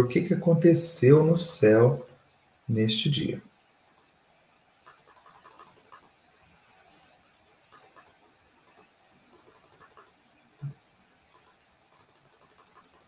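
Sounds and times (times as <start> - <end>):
keyboard and mouse clicking: 1.1 - 2.2, 3.8 - 4.1, 4.8 - 6.2, 7.7 - 13.0.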